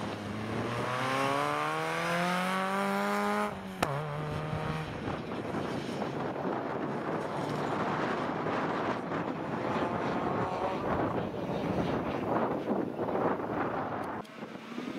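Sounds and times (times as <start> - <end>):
rally car engine accelerating: 0.0 - 6.0
wind noise: 2.7 - 14.9.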